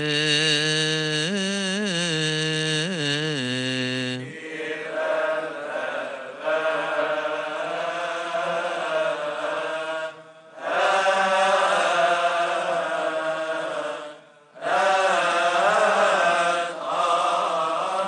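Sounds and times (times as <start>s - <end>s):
man chanting into microphone: 0.0s - 5.0s
response chant: 0.0s - 18.0s.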